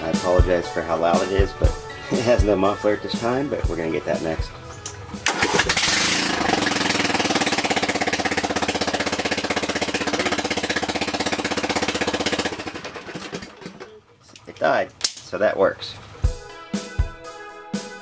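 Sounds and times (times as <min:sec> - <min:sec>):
engine exhaust pulsing: 0:00.4 - 0:13.9
engine winding down: 0:03.4 - 0:14.0.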